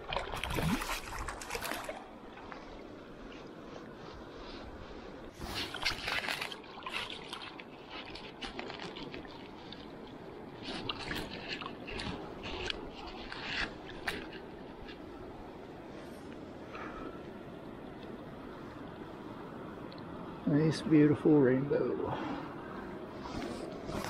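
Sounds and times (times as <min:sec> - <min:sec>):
water splashing: 0:00.0 - 0:02.8, 0:05.3 - 0:14.6
river riffle running: 0:00.0 - 0:17.0.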